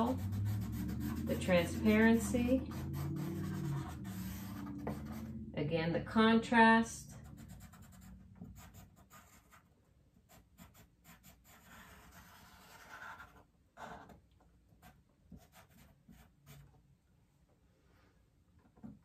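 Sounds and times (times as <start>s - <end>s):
charcoal pencil scratching on paper: 0.0s - 5.2s, 7.3s - 9.7s, 10.3s - 14.1s, 14.8s - 16.7s.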